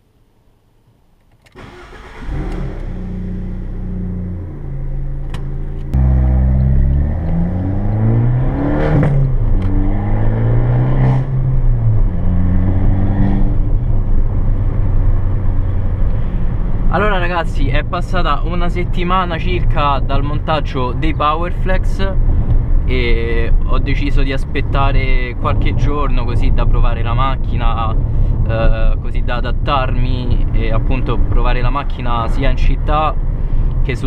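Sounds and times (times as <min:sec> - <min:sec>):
car engine starting and idling: 0:00.4 - 0:12.3
car engine accelerating: 0:01.6 - 0:17.3.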